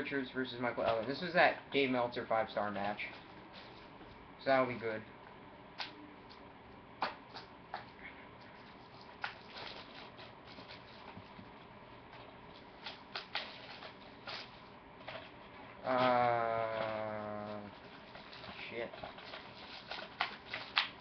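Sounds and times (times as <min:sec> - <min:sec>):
plastic cases clicking and crinkling: 0:17.8 - 0:21.0.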